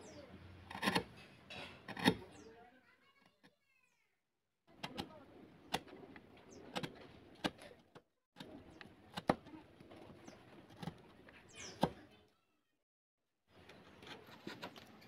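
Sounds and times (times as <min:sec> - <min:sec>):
chisel cutting into wood: 0:00.5 - 0:02.4, 0:08.4 - 0:12.0.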